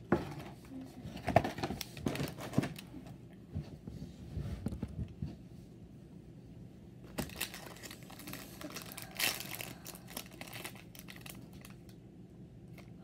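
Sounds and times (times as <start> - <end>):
plastic wrapper crinkling: 7.2 - 12.0.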